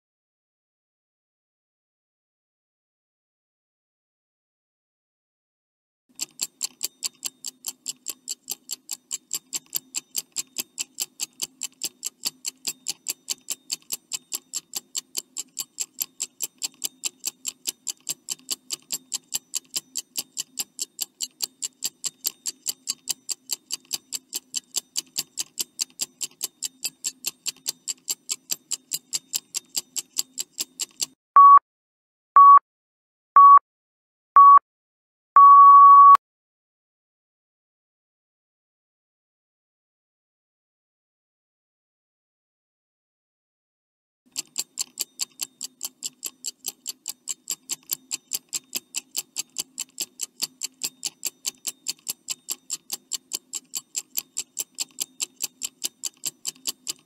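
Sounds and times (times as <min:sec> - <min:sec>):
clock ticking fast: 0:06.1 - 0:31.2, 0:44.3 - 0:57.0
short loud high beeps: 0:31.4 - 0:31.6, 0:32.4 - 0:32.6, 0:33.4 - 0:33.6, 0:34.4 - 0:34.6, 0:35.4 - 0:36.2.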